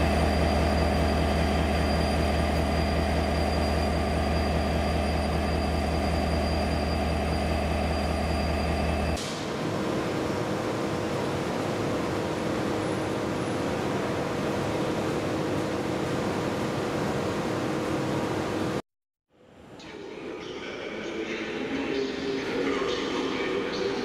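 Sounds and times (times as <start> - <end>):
diesel locomotive idling: 0.0 - 18.0
electric locomotive hum: 0.0 - 18.8
high whine: 0.0 - 18.8.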